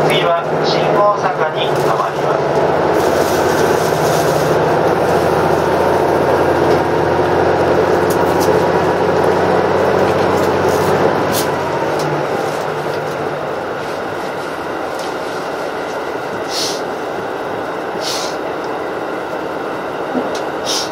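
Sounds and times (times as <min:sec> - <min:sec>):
diesel engine drone: 0:00.0 - 0:20.9
train wheels on rails: 0:00.0 - 0:20.9.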